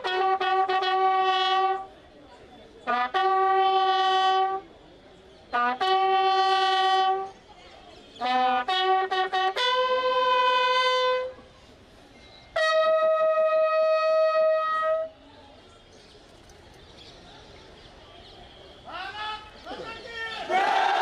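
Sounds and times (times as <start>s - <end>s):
military bugles playing: 0.0s - 1.9s, 2.8s - 4.7s, 5.5s - 7.3s, 8.2s - 11.3s, 12.6s - 15.1s, 18.8s - 21.0s.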